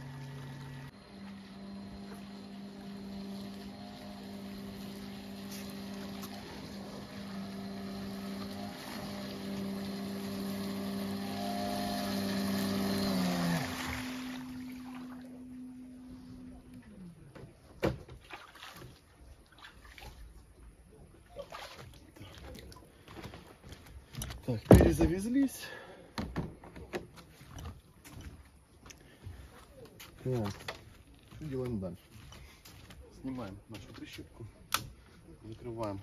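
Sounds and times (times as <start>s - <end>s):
electric motors whining: 0.0s - 16.9s.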